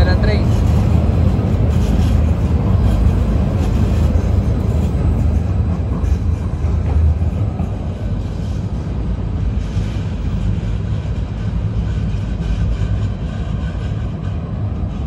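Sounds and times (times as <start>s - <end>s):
light-rail train approaching: 0.0s - 15.0s
low rumble of street noise: 0.0s - 15.0s.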